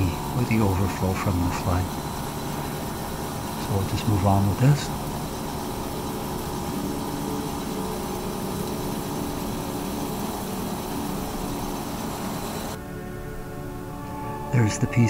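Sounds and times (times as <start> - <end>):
milling machine cutting metal: 0.0 - 12.8.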